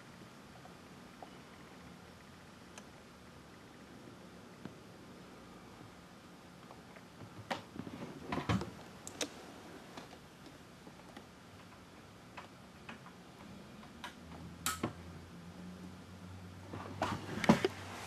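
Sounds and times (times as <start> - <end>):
low steady hum: 0.0 - 18.0
hard drive clicks and ticks: 10.0 - 15.0.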